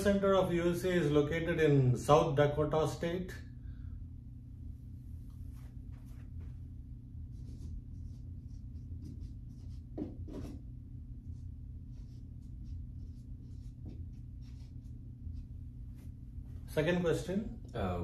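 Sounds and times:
low hum: 0:03.3 - 0:18.0
marker writing on whiteboard: 0:07.2 - 0:16.2.

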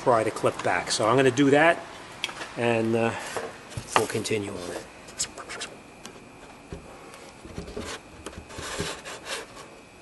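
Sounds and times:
faint high whine: 0:00.0 - 0:10.0
rubbing and scraping handling noises: 0:03.2 - 0:09.9.

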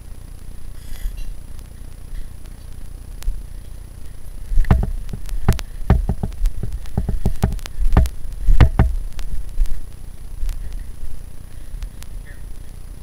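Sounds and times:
low bumps: 0:04.5 - 0:09.8
sharp knocks on rock: 0:04.6 - 0:09.0.

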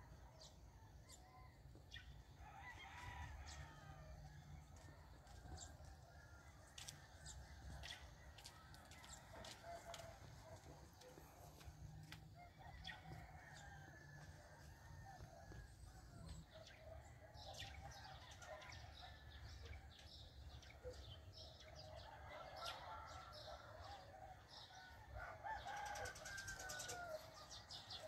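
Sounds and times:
distant roosters crowing: 0:00.9 - 0:16.5, 0:22.2 - 0:28.0.

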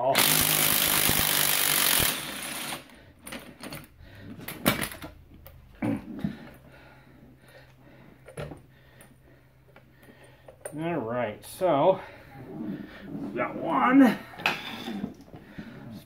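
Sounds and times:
impact wrench hammering: 0:00.0 - 0:02.9.

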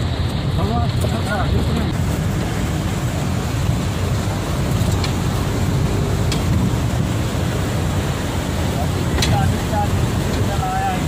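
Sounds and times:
river rushing through rapids: 0:00.0 - 0:11.0.

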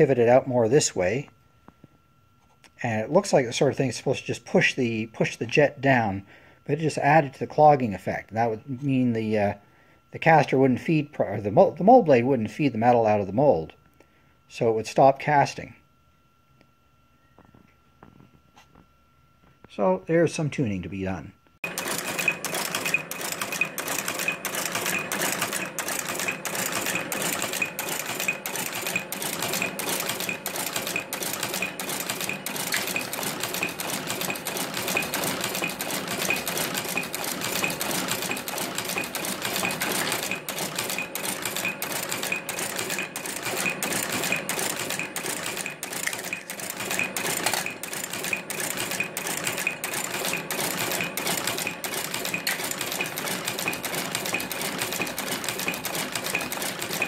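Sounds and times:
rhythmic machine clatter: 0:21.6 - 0:57.0.

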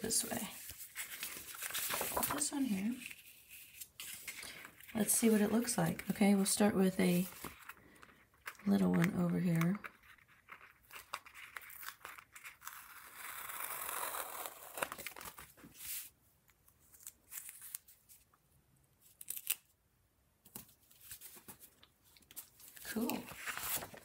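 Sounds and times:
tape peeling off plastic: 0:19.1 - 0:19.7.

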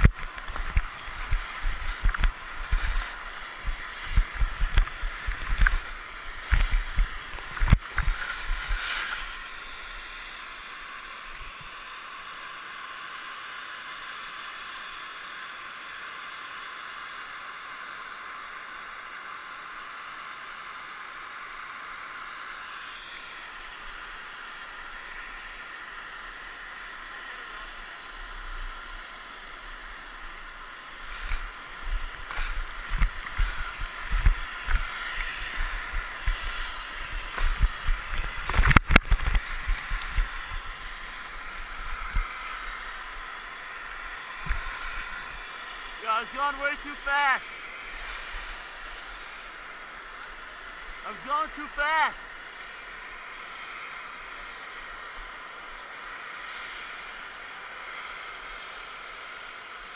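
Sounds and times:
skis hissing over snow: 0:00.0 - 0:16.8, 0:20.3 - 0:59.9.

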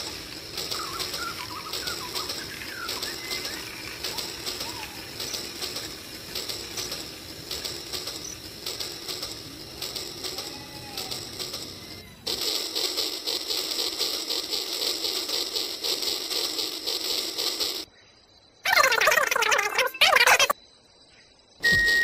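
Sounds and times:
birds chirping: 0:00.0 - 0:12.3, 0:17.8 - 0:22.0
toy train motor hum: 0:00.0 - 0:17.9
wheels clicking on rails: 0:00.0 - 0:17.9.

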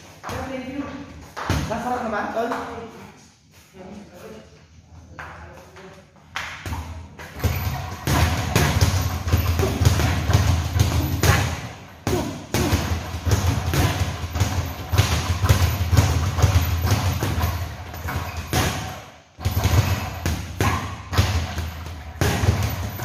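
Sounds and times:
boxing gloves punching bags: 0:06.6 - 0:23.0.

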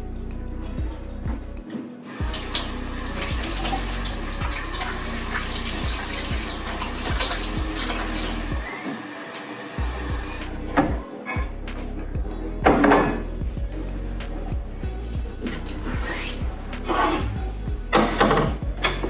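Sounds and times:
water running from tap: 0:02.1 - 0:10.6.

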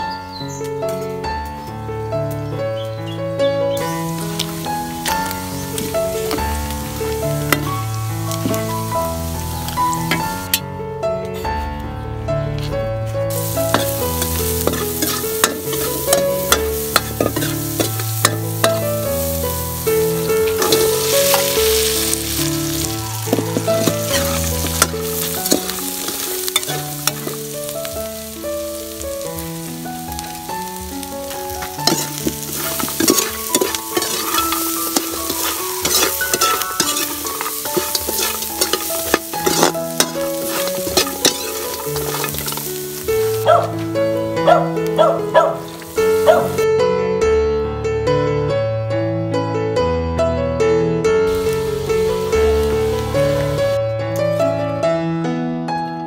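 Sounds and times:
instrumental background music: 0:00.0 - 0:50.4, 0:51.0 - 0:56.0
fat sizzling in a wok: 0:03.7 - 0:10.6, 0:13.3 - 0:46.7, 0:51.3 - 0:54.6
metal spatula scraping a pan: 0:13.4 - 0:27.5, 0:31.6 - 0:43.4.

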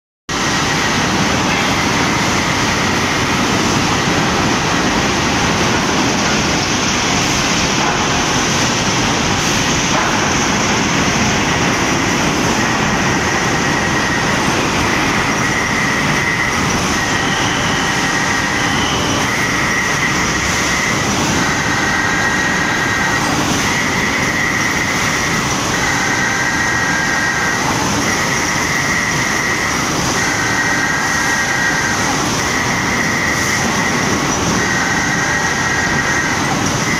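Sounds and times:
rolling mill industrial din: 0:00.3 - 0:36.9
high-pitched squeal: 0:09.0 - 0:36.9.

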